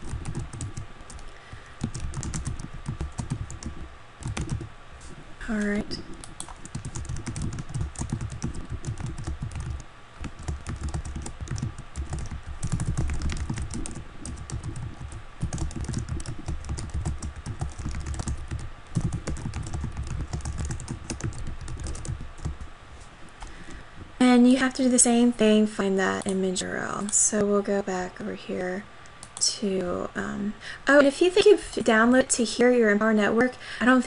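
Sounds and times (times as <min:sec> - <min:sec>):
rapid typing on keyboard: 0:00.0 - 0:04.7, 0:05.5 - 0:22.7.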